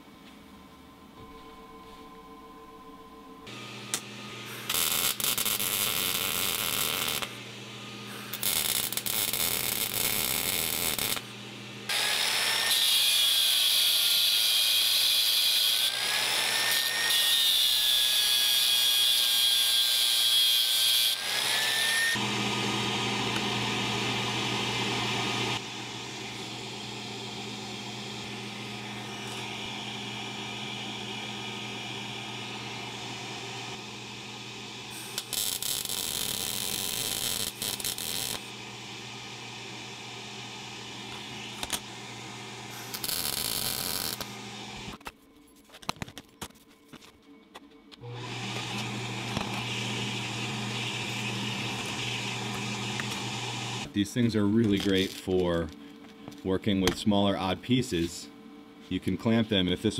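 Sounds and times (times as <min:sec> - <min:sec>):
steady hum: 0:00.0 - 0:09.0
angle grinder grinding steel: 0:03.5 - 0:11.3, 0:34.9 - 0:38.6, 0:41.0 - 0:45.0, 0:48.0 - 0:53.9.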